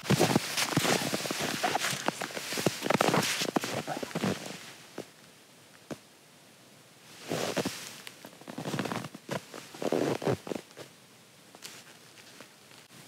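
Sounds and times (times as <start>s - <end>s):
padded jacket rustling: 0.0s - 4.8s, 7.2s - 10.6s
shuffling in snow: 0.0s - 5.1s, 7.0s - 10.7s.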